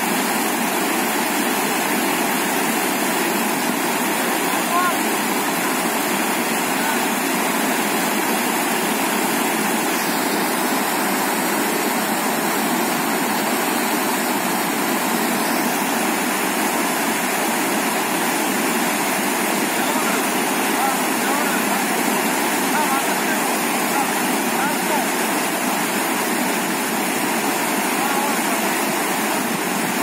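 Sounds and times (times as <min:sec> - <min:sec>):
water rushing over rocks: 0:00.0 - 0:30.0.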